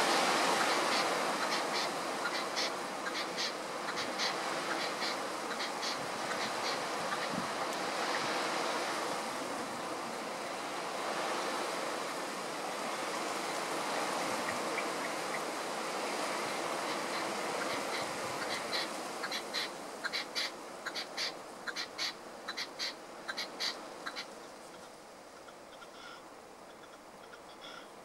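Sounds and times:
steady wind noise: 0.0s - 27.2s
high bird calls: 0.5s - 8.3s, 16.4s - 28.0s.

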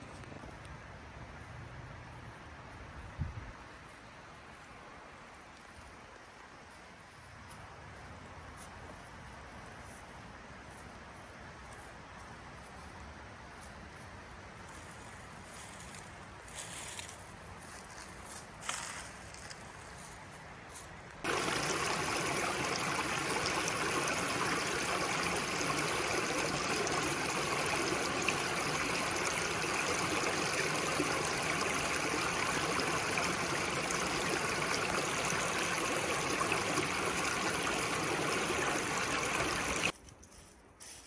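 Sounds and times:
stream water rushing: 21.2s - 39.9s.

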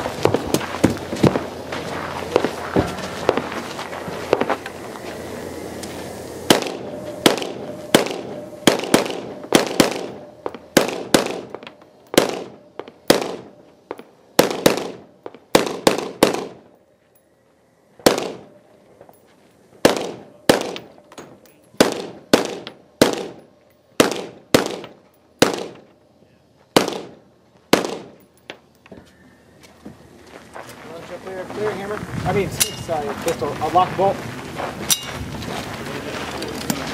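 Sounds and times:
rifle shots with echo: 6.5s - 16.7s, 18.0s - 18.6s, 19.8s - 21.0s, 21.8s - 23.4s, 24.0s - 25.8s, 26.8s - 28.2s.

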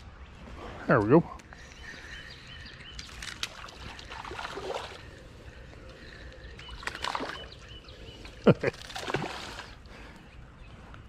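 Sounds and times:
fish splashing at the surface: 3.4s - 5.1s, 8.6s - 9.8s.

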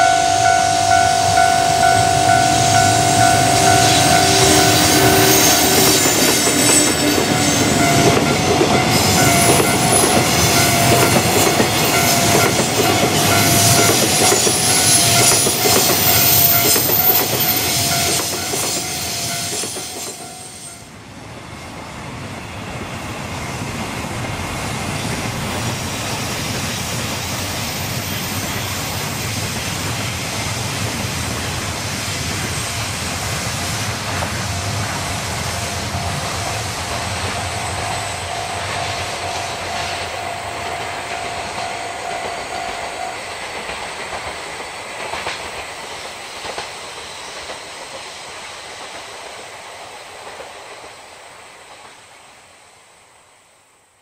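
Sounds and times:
high-pitched steady tone: 0.0s - 20.9s, 34.4s - 43.7s.

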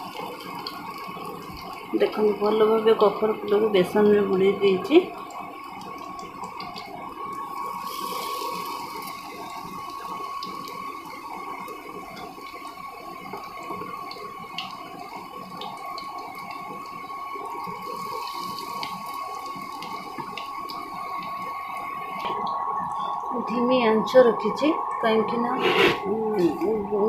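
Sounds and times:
deep-frying sizzle with pops: 0.0s - 25.6s
steady high tone: 22.2s - 27.0s.

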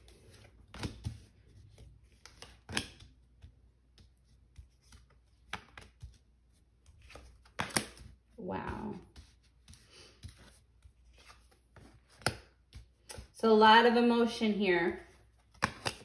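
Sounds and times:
cards sliding and rustling: 0.0s - 8.3s, 9.1s - 13.3s, 15.0s - 16.0s
cards snapping onto table: 7.1s - 8.1s.

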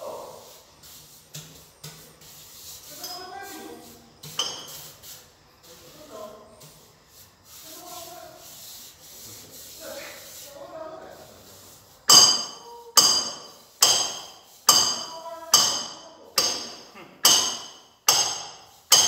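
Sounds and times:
trowel scraping mortar on concrete: 0.6s - 5.8s
sharp metallic clink: 12.1s - 19.0s.

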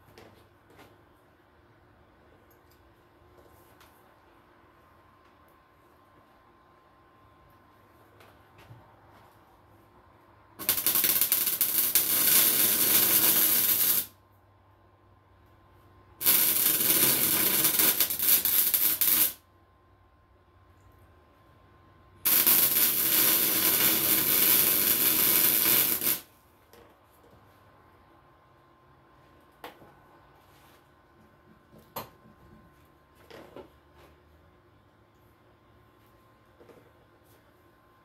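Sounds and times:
welding arc crackling: 10.6s - 14.2s, 16.2s - 19.4s, 22.2s - 26.3s.

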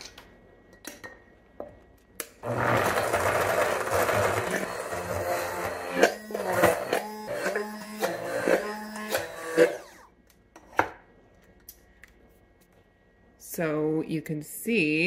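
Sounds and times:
immersion blender running: 2.4s - 10.1s.

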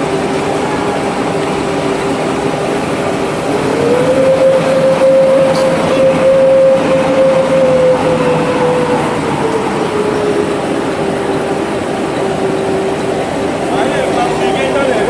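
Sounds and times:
machine clatter and hum: 0.0s - 15.0s
machine whine: 0.0s - 15.0s.

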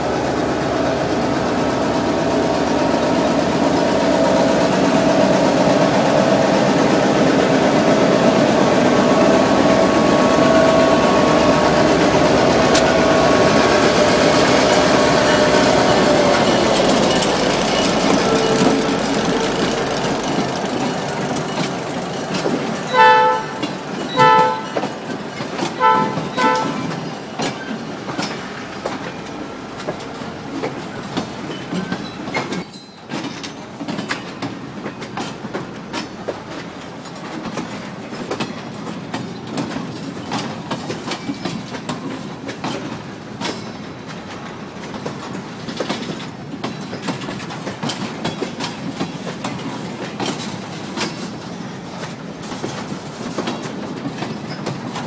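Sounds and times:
freight train wheels clicking: 0.0s - 55.0s
steady train rumble: 0.0s - 55.0s
locomotive horn blasts: 22.9s - 24.9s, 25.7s - 27.0s.

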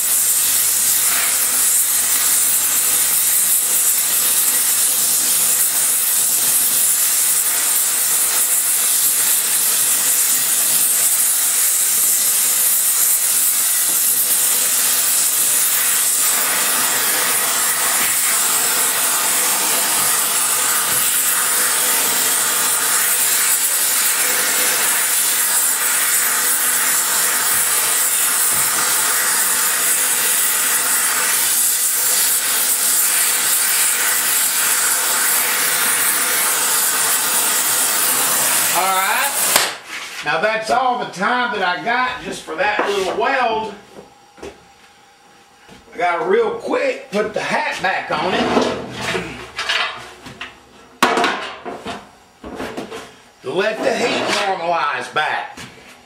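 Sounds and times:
torch flame hissing: 0.0s - 40.2s.

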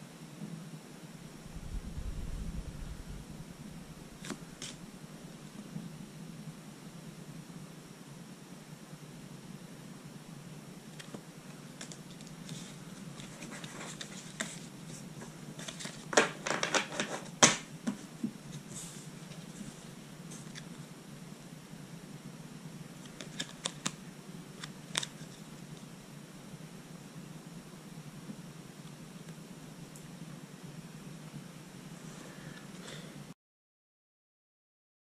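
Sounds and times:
steady hiss: 0.0s - 33.4s
trading cards clicking and snapping: 23.1s - 24.0s.

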